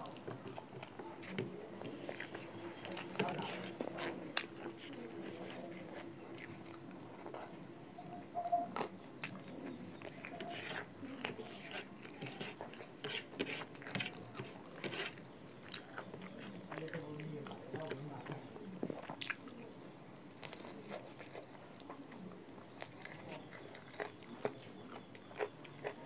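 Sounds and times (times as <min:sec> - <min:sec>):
chewing and lip smacks: 0:01.8 - 0:07.6, 0:08.4 - 0:10.9, 0:15.6 - 0:18.0, 0:18.9 - 0:19.6, 0:20.3 - 0:26.0.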